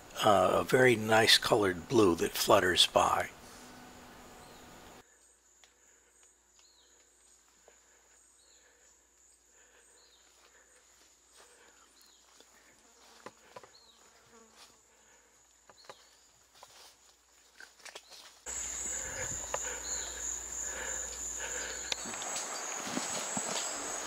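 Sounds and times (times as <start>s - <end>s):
insect drone high-pitched tone: 18.5s - 24.0s.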